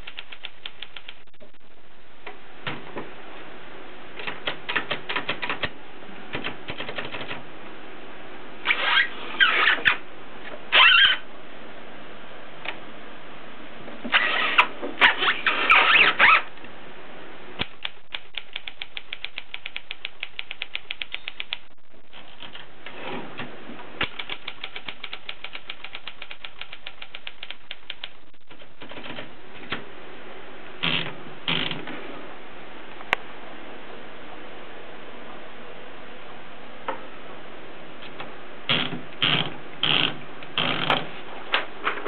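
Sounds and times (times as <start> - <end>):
typewriter rattling: 6.3 - 7.4, 24.0 - 29.3.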